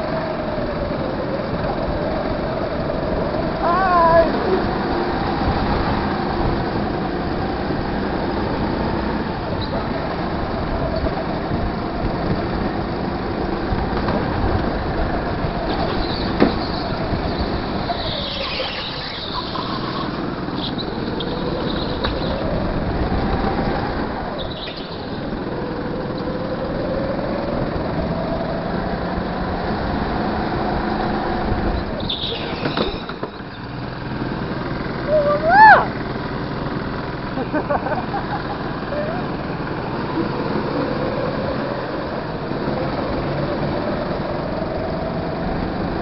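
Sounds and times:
go-kart motor racing: 0.0s - 46.0s
tyres squealing: 15.7s - 22.5s, 31.9s - 33.7s.

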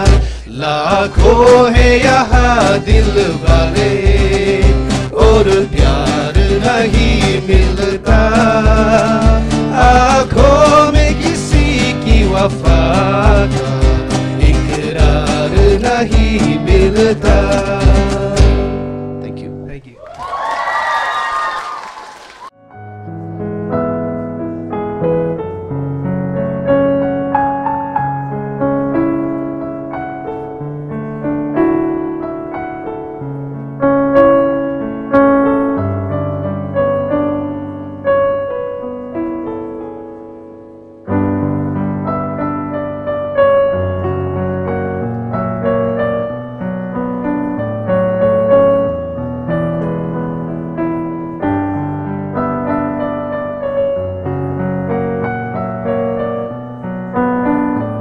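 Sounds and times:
slow piano piece: 20.5s - 58.0s.

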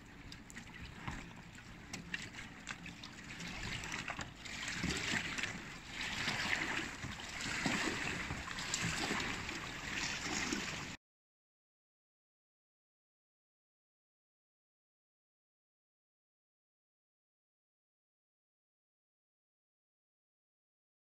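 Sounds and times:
small water splashes: 0.0s - 11.0s
water lapping against boat: 0.0s - 11.0s.

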